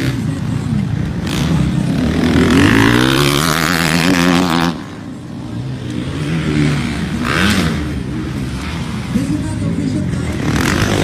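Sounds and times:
dirt bike engines revving: 0:00.0 - 0:11.0.

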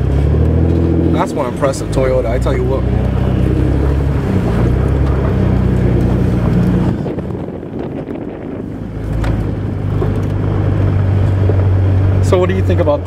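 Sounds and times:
vehicle engine running: 0:00.0 - 0:13.0
wind on microphone: 0:02.8 - 0:12.2.

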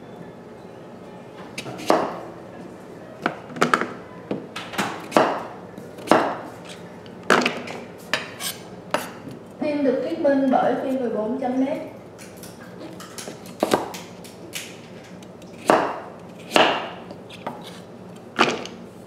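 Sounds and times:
knife chopping on wooden board: 0:01.8 - 0:02.1, 0:05.0 - 0:05.4, 0:06.0 - 0:06.4, 0:13.6 - 0:14.0, 0:15.6 - 0:16.9.

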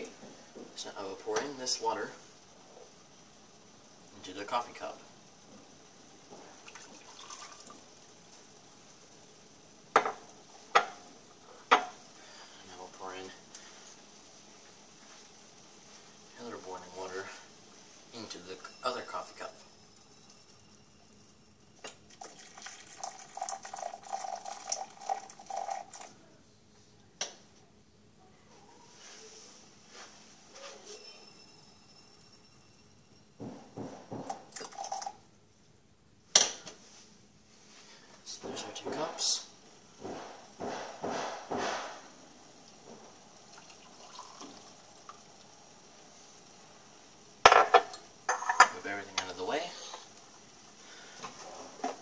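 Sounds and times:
water pouring into glass cup: 0:06.6 - 0:07.8, 0:22.0 - 0:26.1, 0:34.5 - 0:35.2, 0:43.5 - 0:45.2
saucepan knock: 0:40.0 - 0:41.9.

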